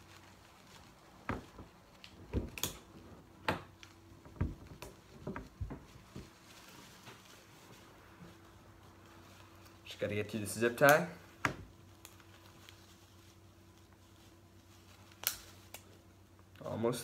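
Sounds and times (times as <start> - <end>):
faint steady hum: 0.0 - 17.0
bag knocking against table: 4.3 - 6.3.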